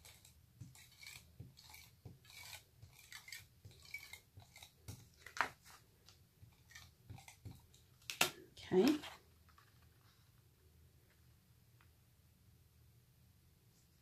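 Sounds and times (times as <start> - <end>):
paper rustling: 5.0 - 6.8.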